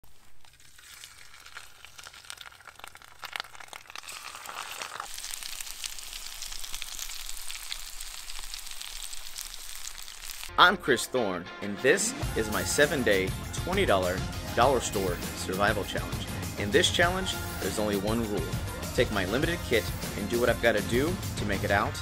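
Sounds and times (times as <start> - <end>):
meat deep frying in oil: 0.0 - 10.5.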